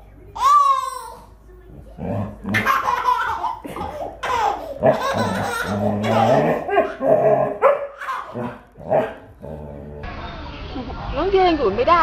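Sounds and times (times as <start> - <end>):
baby laughing and squealing: 2.6 - 7.0, 8.0 - 8.4.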